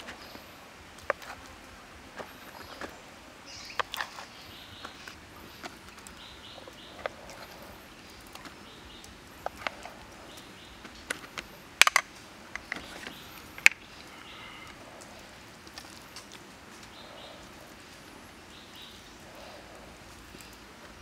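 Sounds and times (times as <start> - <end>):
faint bird chirps: 12.6 - 15.3.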